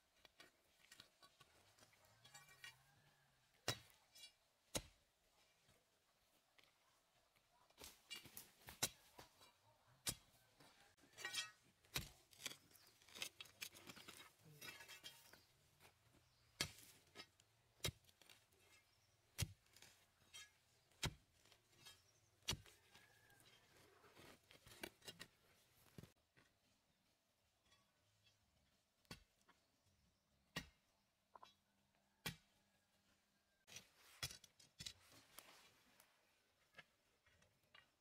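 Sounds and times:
hoe chopping stony soil: 0:16.2 - 0:22.8.

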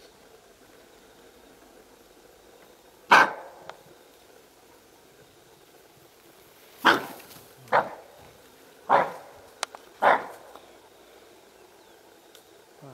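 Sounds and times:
antelope alarm barks: 0:03.1 - 0:03.7, 0:06.8 - 0:08.2, 0:08.8 - 0:10.6.

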